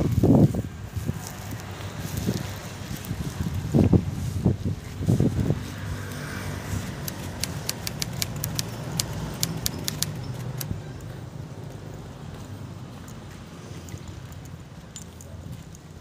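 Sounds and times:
sharp clicks: 6.9 - 10.8.

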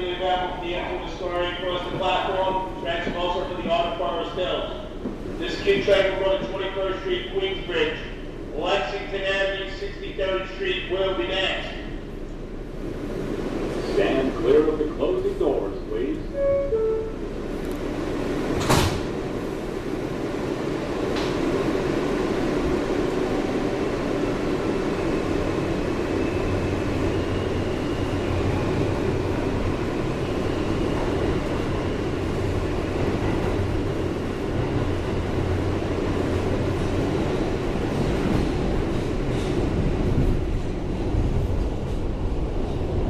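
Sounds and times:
wheel and track rumble: 0.0 - 8.2, 17.3 - 43.0.

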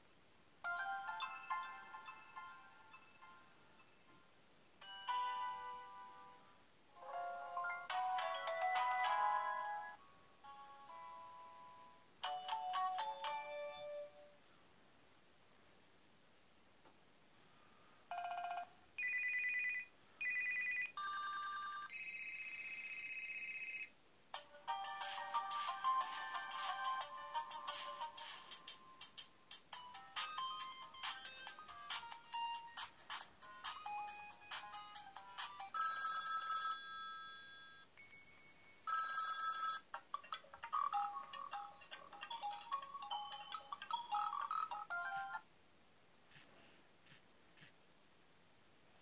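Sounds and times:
melodic ringtone: 0.6 - 4.0, 4.8 - 14.2, 18.1 - 28.8, 29.7 - 45.5
electronic phone ringtones: 18.1 - 24.0, 35.4 - 40.0, 40.8 - 45.5
quick chiming ringtone: 43.2 - 45.4.

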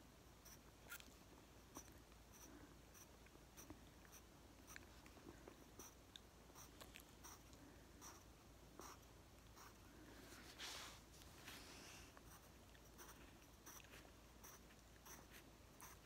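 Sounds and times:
pencil scratching on paper: 14.4 - 16.0.

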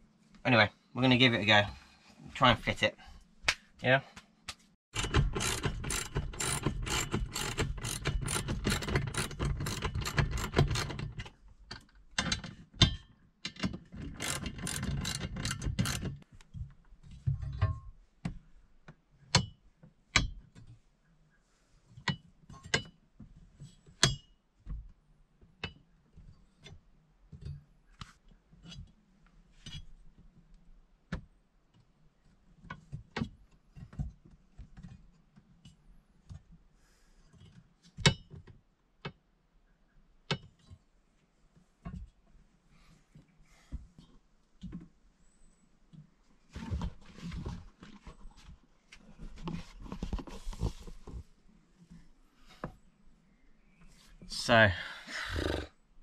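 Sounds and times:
metal clicks and knocks: 4.9 - 16.3
hand ratchet clicking: 5.0 - 11.2, 14.0 - 16.1.

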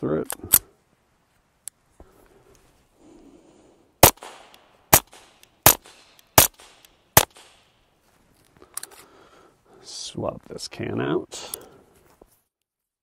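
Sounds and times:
suppressed pistol shots: 4.0 - 7.7.

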